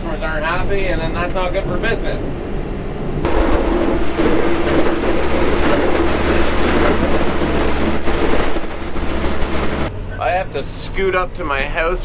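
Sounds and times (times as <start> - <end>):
diesel engine drone: 3.2 - 12.0
plow blade pushing snow: 3.3 - 9.9.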